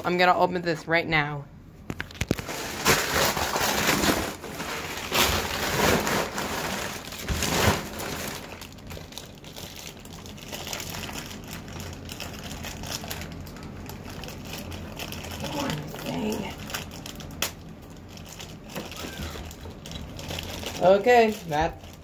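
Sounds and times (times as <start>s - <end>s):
packaging crinkling and rustling: 1.8s - 22.0s.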